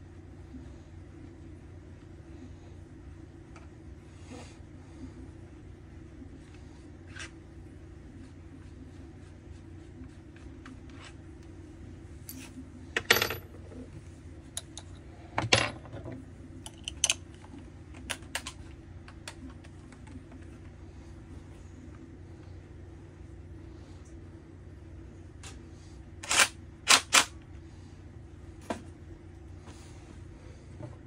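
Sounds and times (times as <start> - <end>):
steady low hum: 0.0 - 31.0
tools and metal parts clinking: 16.7 - 17.3.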